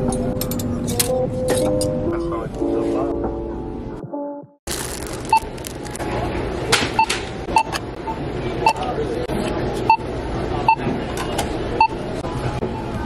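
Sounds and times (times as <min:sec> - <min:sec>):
barcode scanner beeping: 0:04.9 - 0:06.0.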